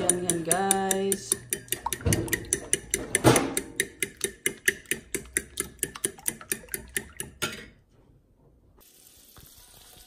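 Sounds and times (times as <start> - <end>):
fork beating eggs in bowl: 0.0 - 7.7.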